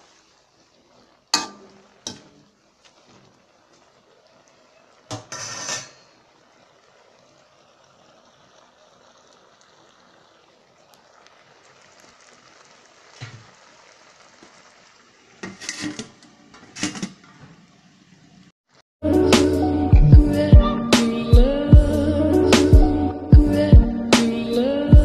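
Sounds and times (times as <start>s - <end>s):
food cooking hiss in a wok: 0.0s - 18.5s.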